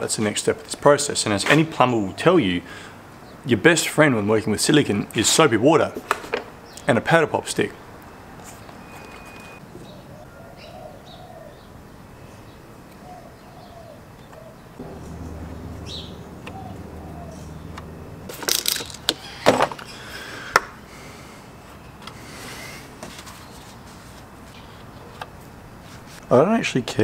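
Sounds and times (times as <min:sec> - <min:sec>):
birds chirping and cooing: 0:01.9 - 0:03.4, 0:09.6 - 0:18.3
low hum: 0:14.8 - 0:18.4.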